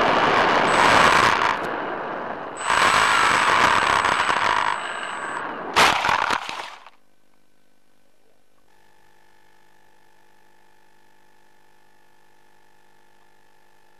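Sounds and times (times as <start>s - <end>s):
electric motor with rushing airflow: 0.0s - 6.9s
high motor whine: 0.0s - 7.4s
faint hum: 0.0s - 13.9s.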